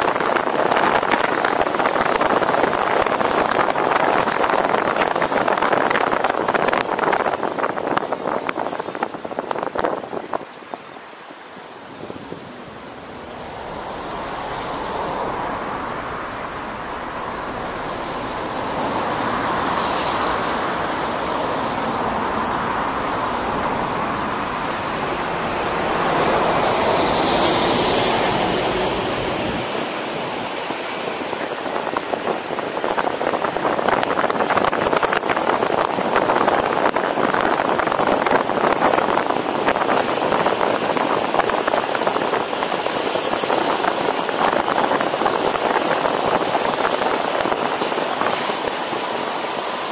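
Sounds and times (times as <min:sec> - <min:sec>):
car road noise: 0:00.0 - 0:49.9
wind rushing over microphone: 0:00.0 - 0:49.9
vehicle passing: 0:13.0 - 0:30.0.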